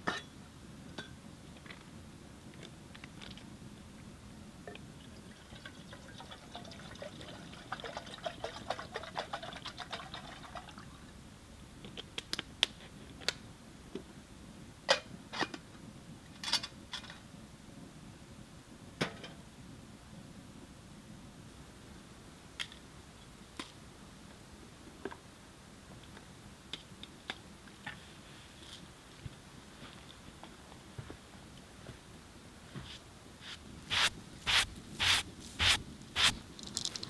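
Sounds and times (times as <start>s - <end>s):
liquid pouring into metal pot: 5.1s - 10.9s.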